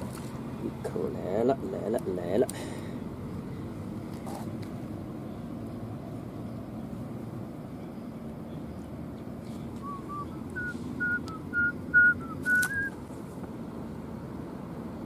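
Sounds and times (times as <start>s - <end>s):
person whistling a tune: 9.8s - 12.9s.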